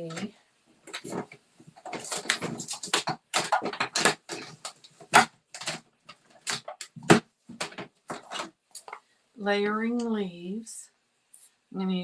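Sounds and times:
craft supplies clicking and rustling: 0.0s - 9.0s.

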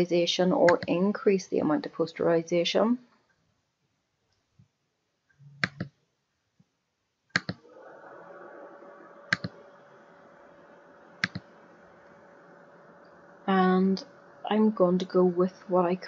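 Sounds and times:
computer mouse clicks: 5.6s - 5.9s, 7.4s - 7.6s, 9.3s - 9.6s, 11.2s - 11.4s
faint steady hum: 7.4s - 16.0s.

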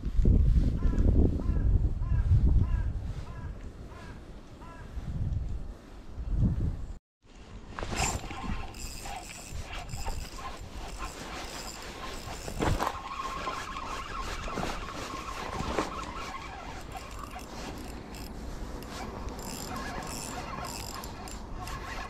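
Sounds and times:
wind rumble on microphone: 0.0s - 7.0s
fishing reel whining: 8.0s - 22.0s.

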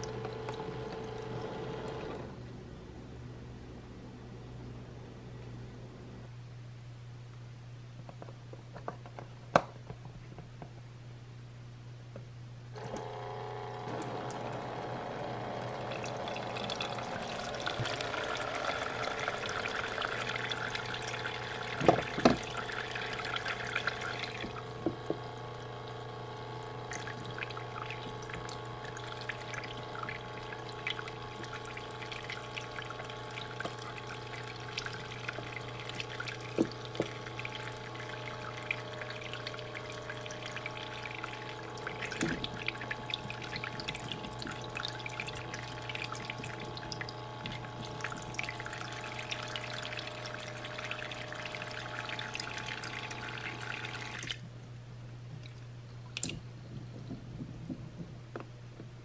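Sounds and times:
small electric pump humming: 0.0s - 2.5s, 12.7s - 54.6s
water trickling into basin: 14.0s - 54.4s.

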